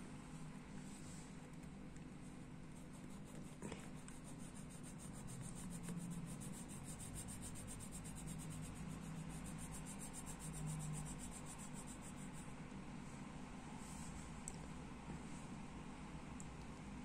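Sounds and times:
low steady hum: 0:00.0 - 0:17.0
colored pencil shading on paper: 0:02.7 - 0:12.5.

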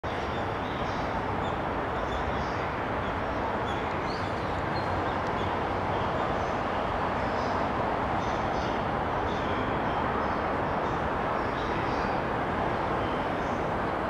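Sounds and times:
outdoor rumble and hiss: 0:00.0 - 0:14.0.

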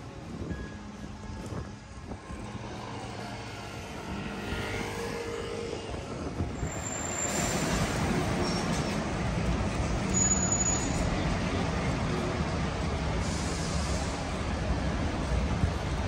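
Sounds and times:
vehicle engine and tyre noise: 0:00.0 - 0:16.0
thin high squeal: 0:06.6 - 0:08.8, 0:10.1 - 0:11.1.

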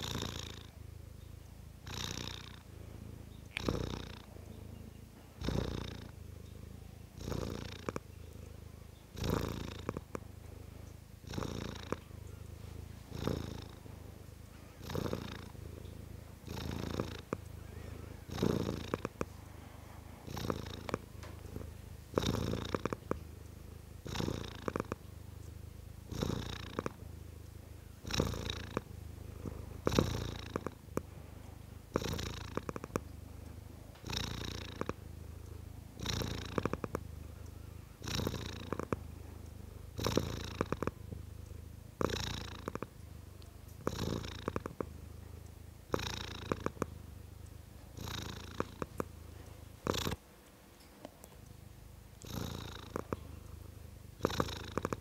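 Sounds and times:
cat purring: 0:00.0 - 0:55.0.

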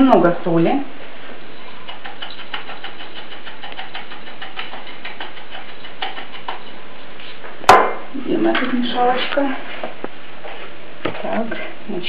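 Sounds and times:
salt ticking into metal bowl: 0:01.8 - 0:06.8.

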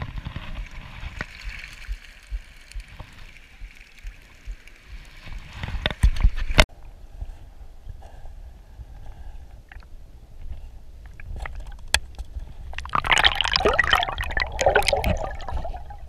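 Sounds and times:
splashing into water: 0:12.8 - 0:16.0.

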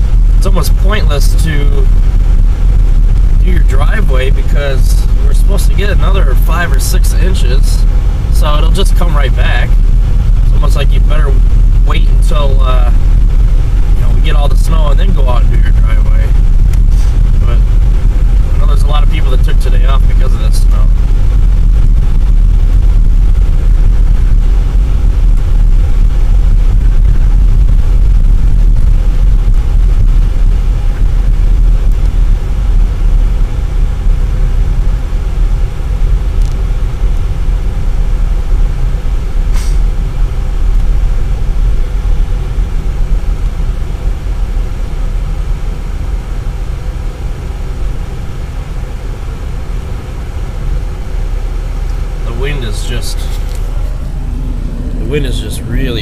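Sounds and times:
car engine and tyres rumbling: 0:00.0 - 0:56.0.

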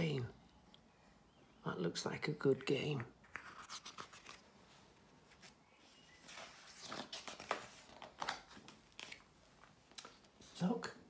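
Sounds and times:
book pages turning: 0:03.2 - 0:04.6, 0:05.2 - 0:10.4
paper rustling: 0:03.2 - 0:10.6.

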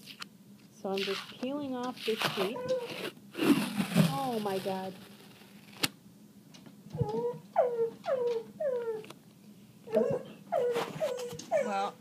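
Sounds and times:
dog whimpering: 0:02.4 - 0:03.0, 0:06.9 - 0:09.1, 0:09.9 - 0:12.0.

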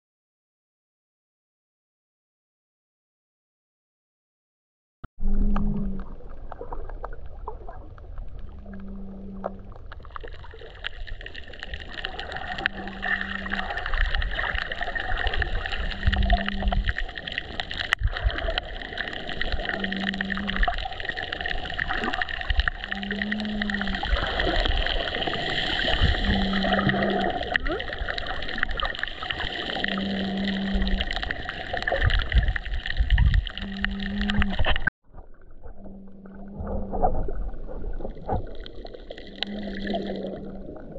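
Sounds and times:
short low hum: 0:05.2 - 0:06.9, 0:08.3 - 0:09.9, 0:33.2 - 0:38.5
underwater hiss and crackle: 0:06.0 - 0:35.3, 0:36.2 - 0:40.9.

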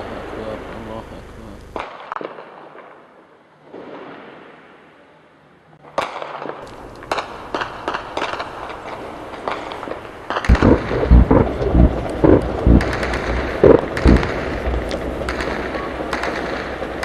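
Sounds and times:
heavy booming reports: 0:00.0 - 0:01.8, 0:06.7 - 0:17.0
rumble: 0:00.0 - 0:01.8, 0:06.6 - 0:17.0
gunshots: 0:01.7 - 0:03.1, 0:05.9 - 0:17.0.

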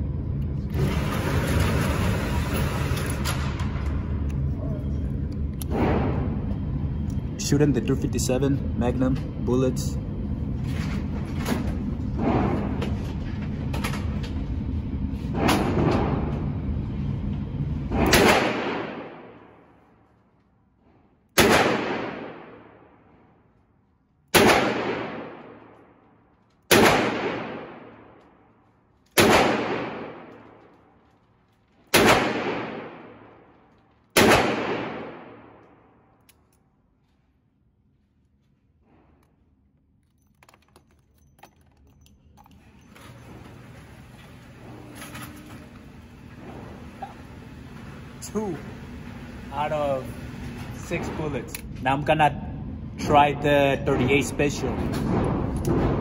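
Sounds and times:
revolver gunshots echoing indoors: 0:00.0 - 0:09.3, 0:10.0 - 0:37.3, 0:53.8 - 0:56.0.

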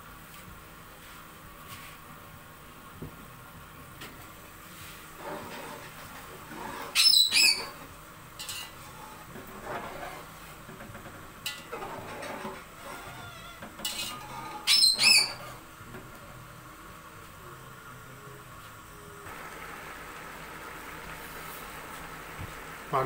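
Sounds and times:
metal spatula scraping a pot: 0:05.2 - 0:10.6, 0:11.4 - 0:15.6
loud high squeals: 0:06.8 - 0:07.8, 0:11.8 - 0:15.6.

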